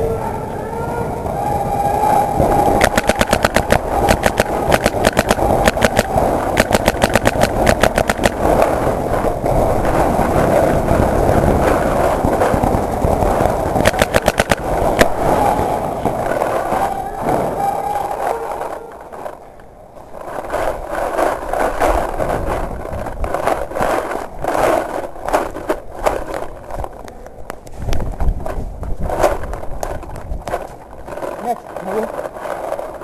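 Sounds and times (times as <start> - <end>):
paintball marker firing: 2.4 - 9.0, 12.2 - 16.8.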